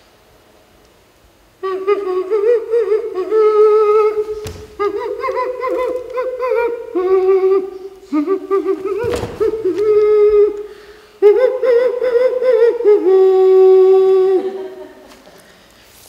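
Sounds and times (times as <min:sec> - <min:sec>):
high voice singing wordless notes: 0:01.6 - 0:15.2
single thud: 0:04.2 - 0:05.1, 0:08.9 - 0:09.9.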